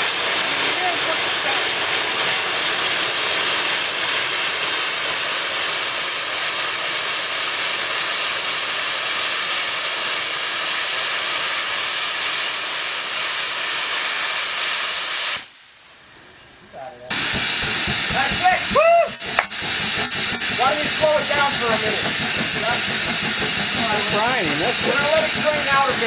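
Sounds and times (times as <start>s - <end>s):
steam hissing from boiler: 0.0s - 26.0s.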